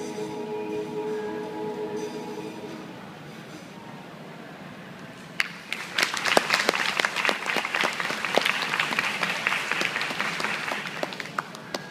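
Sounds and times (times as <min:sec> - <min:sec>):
audience applauding: 0:05.4 - 0:11.9.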